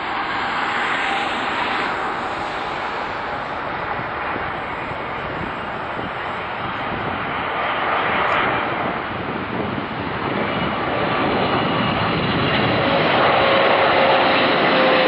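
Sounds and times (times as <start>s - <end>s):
jet engine roar: 0.0s - 15.0s
thin jet whine: 0.0s - 15.0s.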